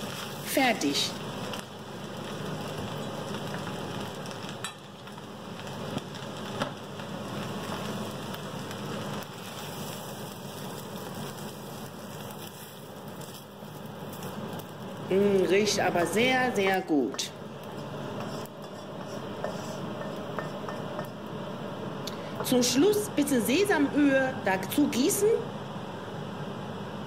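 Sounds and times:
rice sizzling in a wok: 0.0 - 27.0
spatula scraping wok: 17.1 - 21.2
spatula knocking on wok: 18.2 - 21.2.

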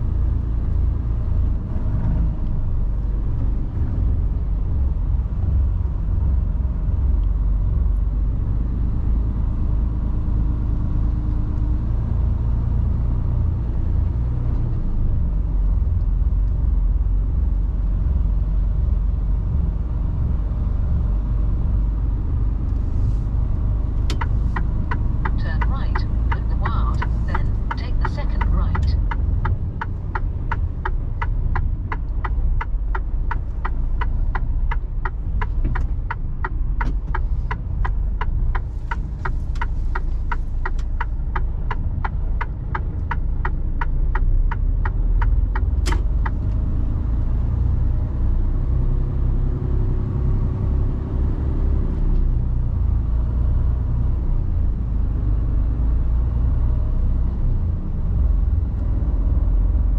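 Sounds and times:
diesel engine rumble: 0.0 - 59.9
turn indicator relay ticking: 24.0 - 46.6.

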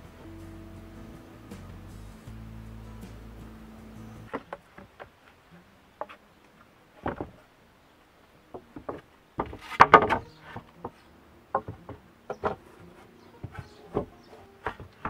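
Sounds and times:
wooden boards knocking and scraping: 4.2 - 5.4, 6.0 - 6.2, 7.0 - 7.5, 8.5 - 15.0.

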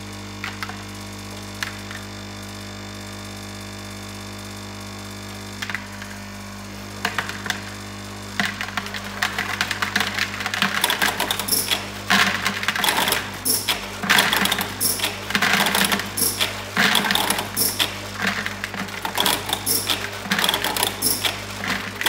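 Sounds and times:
vibratory feeder humming: 5.9 - 22.0
tablets rattling and clicking: 7.0 - 7.7, 8.4 - 22.0.

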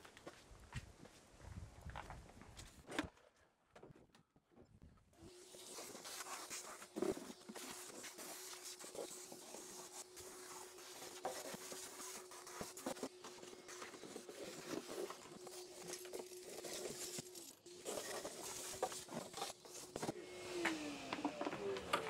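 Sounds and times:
vacuum cleaner running: 5.2 - 22.0.

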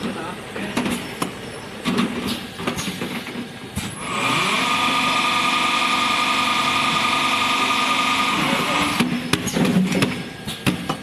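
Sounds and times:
electric motor whining hum: 4.0 - 9.1.

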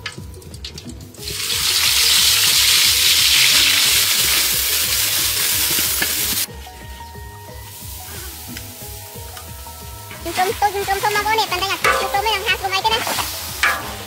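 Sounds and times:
spice paste sizzling in oil: 0.0 - 14.0
ladle stirring in a wok: 7.6 - 14.0.

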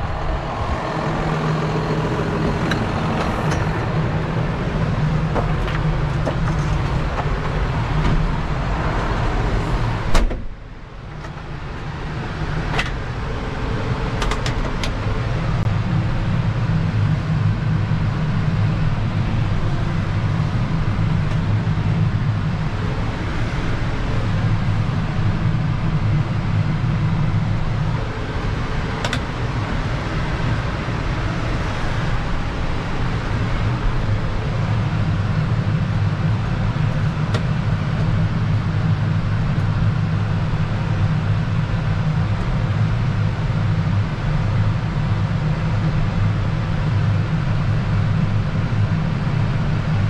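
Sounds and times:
tractor diesel engine running: 0.0 - 50.0
door slam: 10.1 - 10.5.

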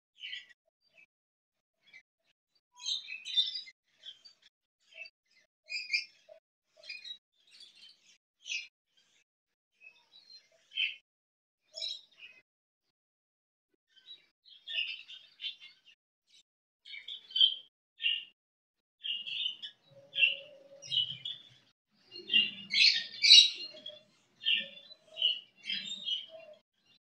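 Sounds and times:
budgerigars chirping: 19.0 - 21.5, 22.2 - 26.3.

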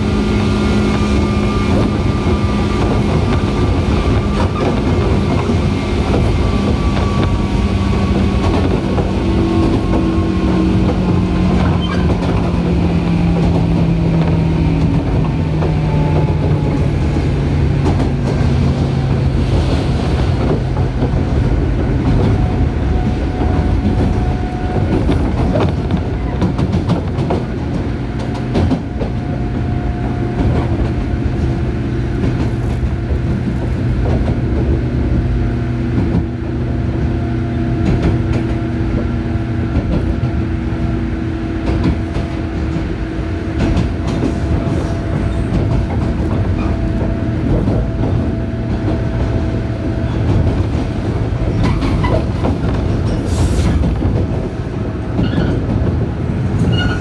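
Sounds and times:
train wheels rumbling: 0.0 - 57.0.

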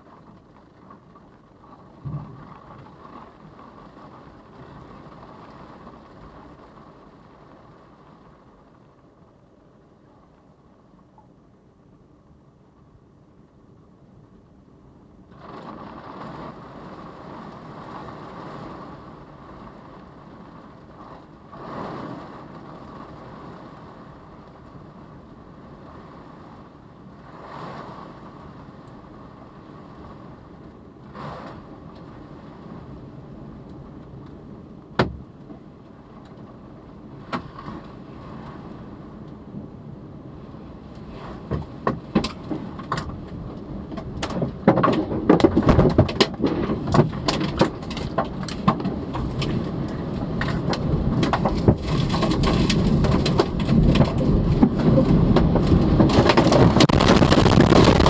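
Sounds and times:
tornado wind rushing: 15.2 - 58.0.

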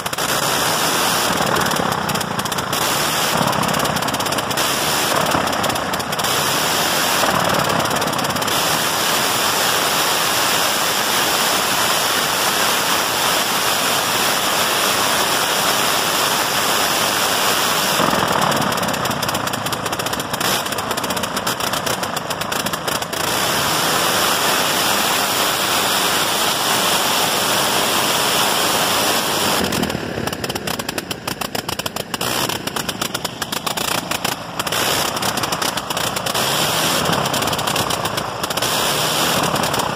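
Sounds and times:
rotary aircraft engine firing: 0.0 - 39.9.

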